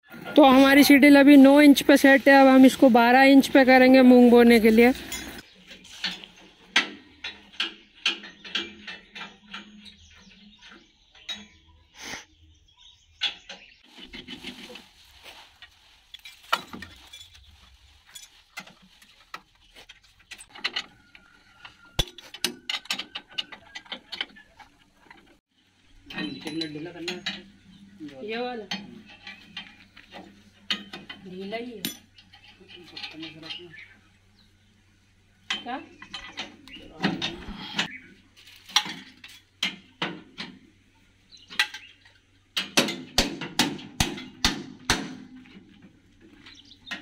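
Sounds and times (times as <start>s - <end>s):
voices: 0.2s - 5.4s, 26.1s - 38.0s
metallic clinks of spanners: 26.1s - 27.4s.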